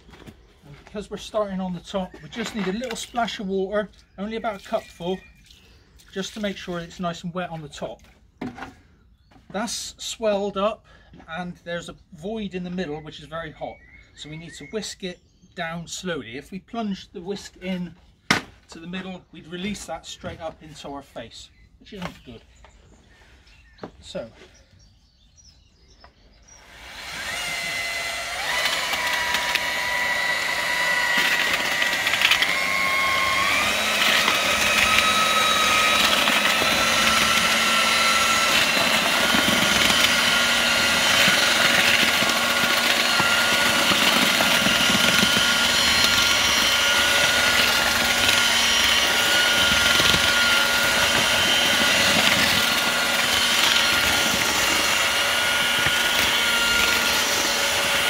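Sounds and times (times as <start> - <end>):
mortar mixer drill motor whine: 0.0 - 7.1, 26.5 - 58.0.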